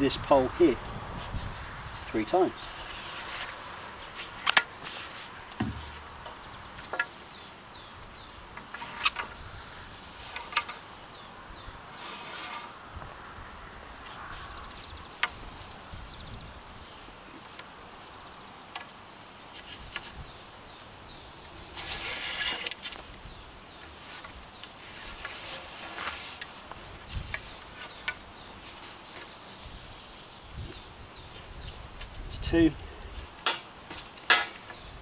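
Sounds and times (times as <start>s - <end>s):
rope rustling and rubbing: 2.6s - 6.3s, 8.7s - 10.9s, 11.9s - 12.8s, 21.7s - 29.6s.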